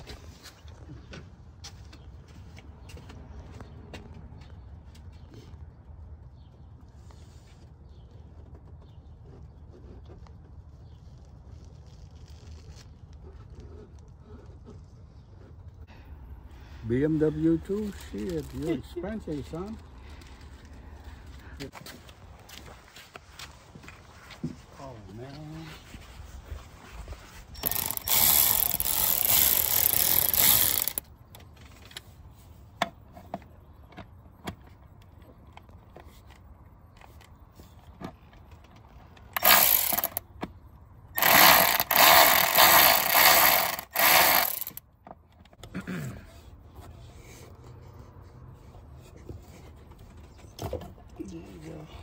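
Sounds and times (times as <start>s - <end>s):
electric ratchet running: 27.6s - 31.1s, 39.4s - 40.2s, 41.2s - 44.8s.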